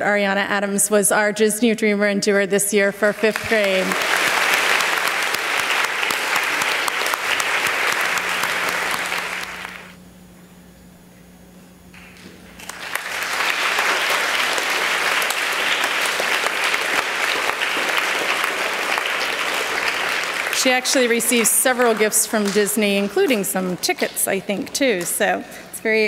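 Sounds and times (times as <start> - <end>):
children applauding: 3.3 - 10.0, 12.6 - 24.0.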